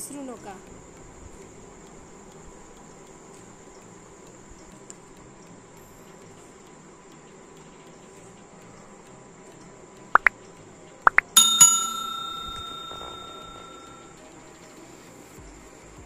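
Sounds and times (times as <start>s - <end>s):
bell ringing: 11.1s - 14.1s.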